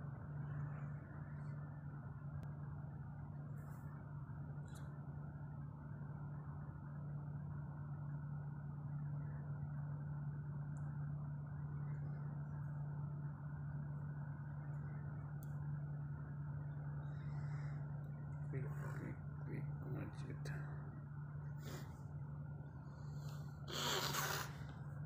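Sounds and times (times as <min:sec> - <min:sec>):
air conditioning hum: 0:00.0 - 0:25.0.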